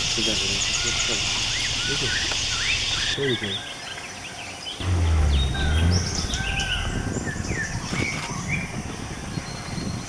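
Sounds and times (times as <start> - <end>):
steady forest hiss: 0.0 - 6.4
forest birds calling: 0.0 - 10.0
low rumble: 4.8 - 9.7.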